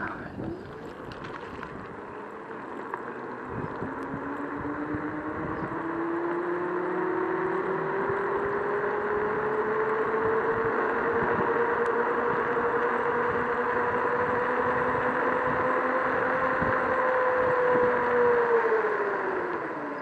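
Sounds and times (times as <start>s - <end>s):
electric scooter motor whining: 0.0s - 20.0s
wind: 0.0s - 20.0s.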